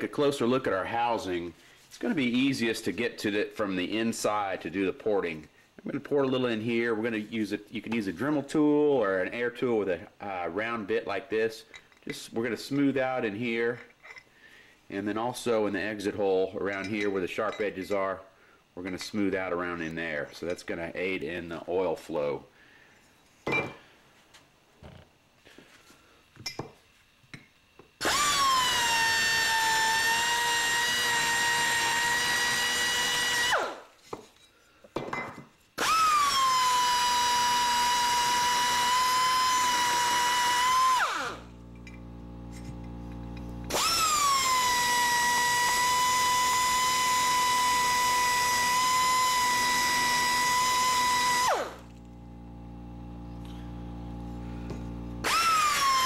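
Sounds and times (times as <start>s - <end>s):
rotary tool grinding metal: 35.8s - 52.1s, 55.2s - 56.0s.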